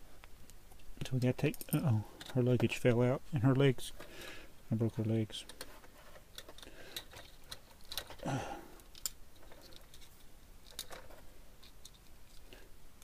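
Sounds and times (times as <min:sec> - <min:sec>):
plastic pieces clicking: 0:05.4 - 0:12.5.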